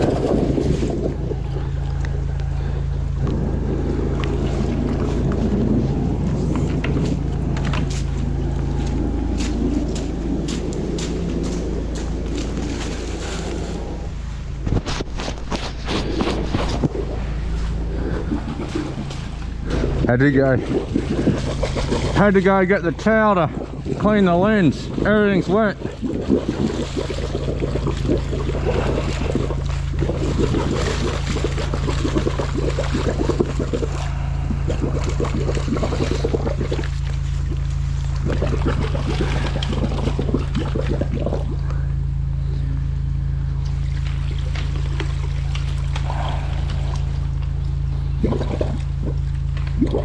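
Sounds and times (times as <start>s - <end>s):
low engine drone: 0.0s - 50.0s
water churning and gurgling: 0.0s - 50.0s.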